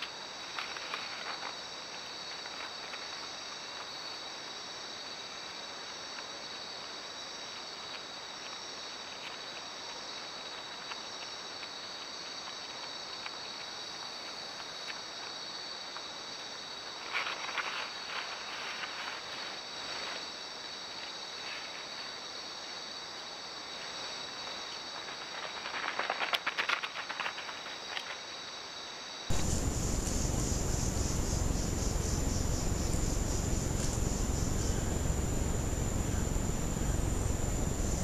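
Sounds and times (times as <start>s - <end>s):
night insects trilling: 0.0s - 38.0s
faint clicks: 29.3s - 38.0s.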